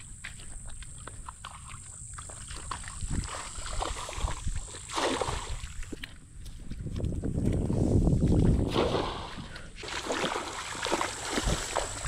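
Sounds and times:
wading feet sloshing in water: 0.0s - 12.0s
wind buffeting microphone: 2.7s - 9.8s.

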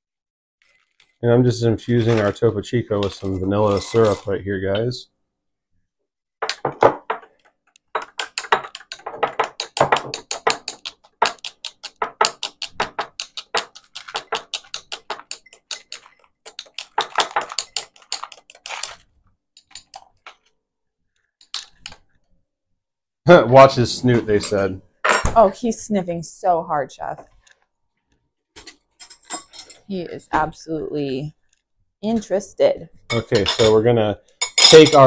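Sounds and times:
spoon clinking ice in glass: 3.0s - 4.4s, 13.3s - 18.4s.

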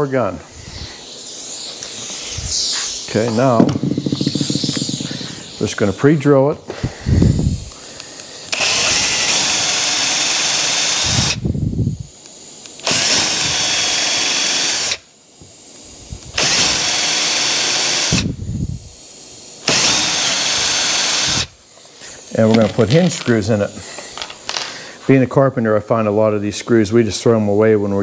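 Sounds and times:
cordless drill drilling wood: 1.7s - 5.8s, 8.5s - 11.5s, 12.8s - 15.0s, 16.3s - 18.4s, 19.6s - 21.6s.

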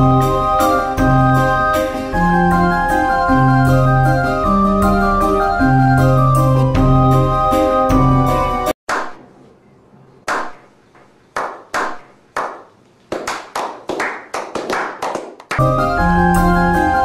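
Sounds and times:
organ music: 0.0s - 8.8s, 15.6s - 17.0s
slow hand clapping: 10.3s - 15.7s.

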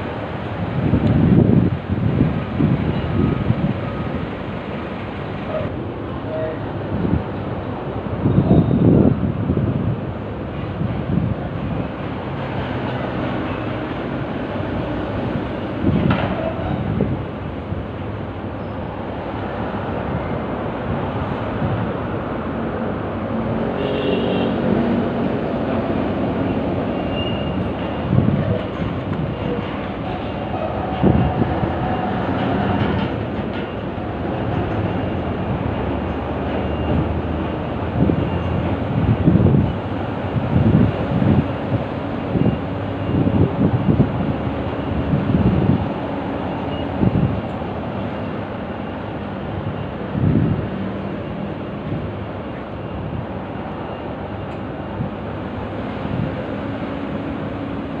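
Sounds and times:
traffic: 0.0s - 58.0s
heavy machinery rumble: 24.5s - 58.0s.

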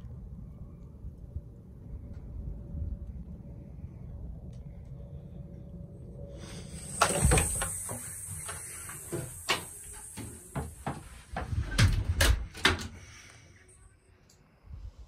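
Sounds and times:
steady hiss: 6.3s - 11.8s.

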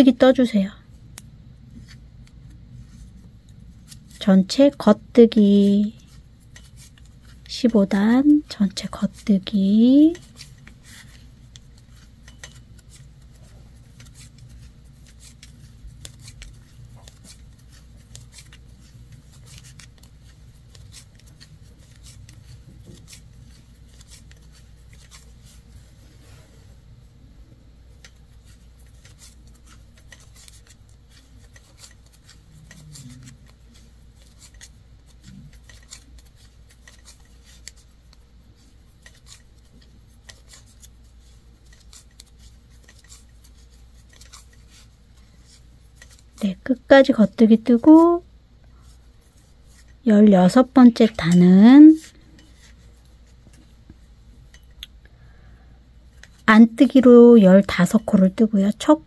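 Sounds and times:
wooden knitting needles clicking: 28.0s - 38.2s.

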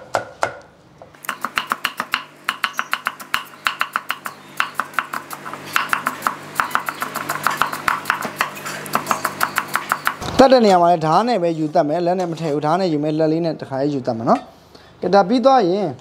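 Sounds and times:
cleaver chopping on wooden block: 1.2s - 10.4s.

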